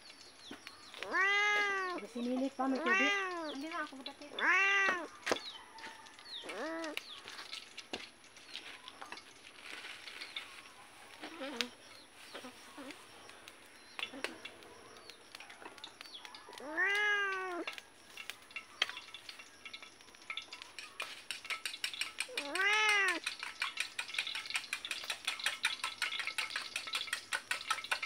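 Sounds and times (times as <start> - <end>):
cat meowing: 1.0 - 2.1, 2.7 - 3.6, 4.3 - 5.1, 6.4 - 7.0, 16.5 - 17.7, 22.3 - 23.2.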